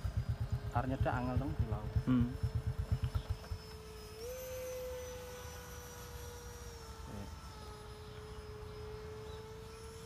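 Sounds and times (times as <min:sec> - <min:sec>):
electric ducted fan whining: 0:00.0 - 0:10.0.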